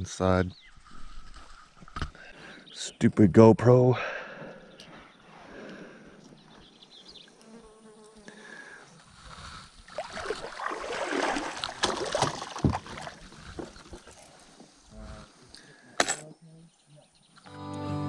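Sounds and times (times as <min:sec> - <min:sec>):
fly buzzing: 0:07.2 - 0:08.8
splashing in shallow water: 0:09.8 - 0:14.4.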